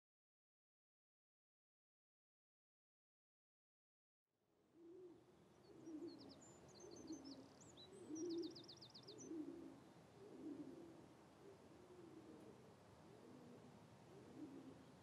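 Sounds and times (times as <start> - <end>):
faint dove cooing: 4.7 - 15.0.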